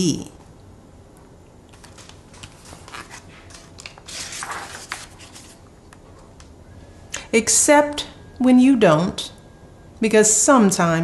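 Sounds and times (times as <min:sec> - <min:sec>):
book pages rustling: 0:01.7 - 0:05.6.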